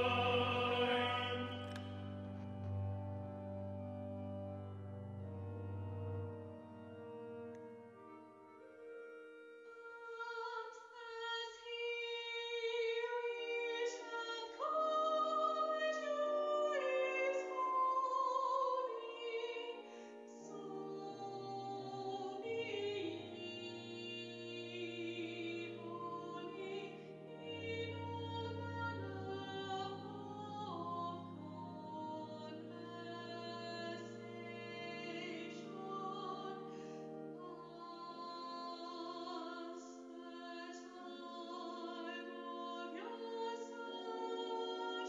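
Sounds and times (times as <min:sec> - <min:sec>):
choir singing: 0:00.0 - 0:01.9.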